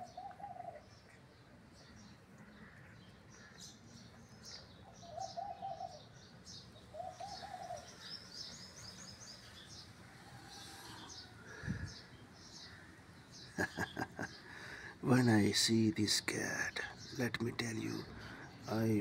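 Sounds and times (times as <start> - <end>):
small birds chirping: 0.0 - 19.0
low wavering coos: 10.0 - 12.0.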